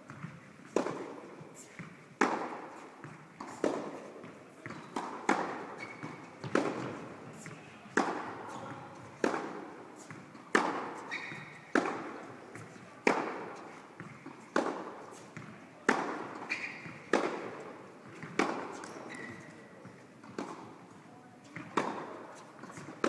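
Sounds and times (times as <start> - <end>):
tennis balls hit by rackets: 0.1 - 23.0
short high squeaks: 5.8 - 6.2, 11.0 - 11.6, 16.4 - 17.0, 18.8 - 19.6.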